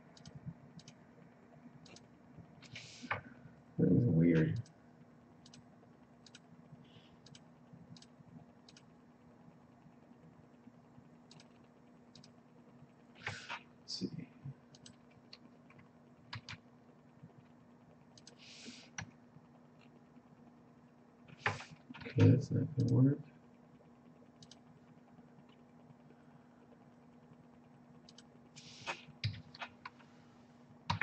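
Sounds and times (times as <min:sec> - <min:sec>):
low steady hum: 0:00.0 - 0:31.0
computer keyboard keystrokes: 0:00.1 - 0:01.0, 0:06.2 - 0:06.4, 0:07.2 - 0:07.4, 0:11.3 - 0:12.3, 0:16.3 - 0:16.6
short breathy hisses: 0:02.7 - 0:03.2, 0:13.2 - 0:13.6, 0:18.4 - 0:19.0, 0:28.6 - 0:29.1.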